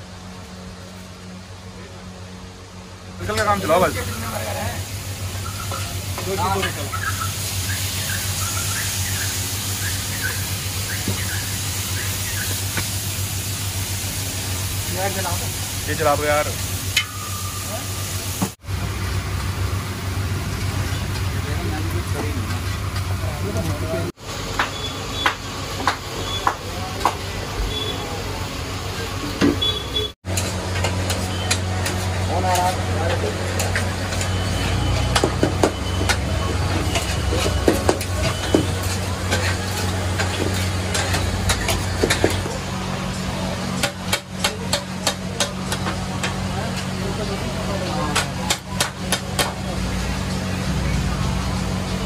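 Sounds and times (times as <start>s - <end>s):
spatulas scraping on griddle: 36.5s - 42.6s.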